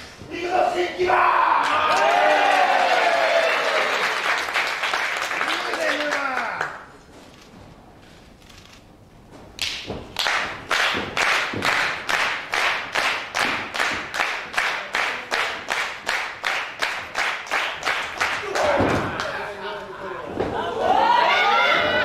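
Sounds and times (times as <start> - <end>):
crowd clapping in unison: 1.6 - 6.9, 9.6 - 19.4.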